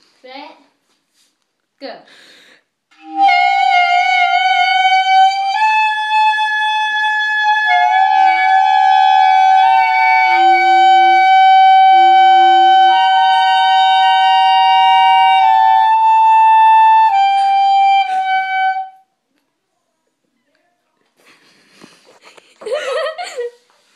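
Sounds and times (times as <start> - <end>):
clarinet high held notes: 2.9 - 19.1.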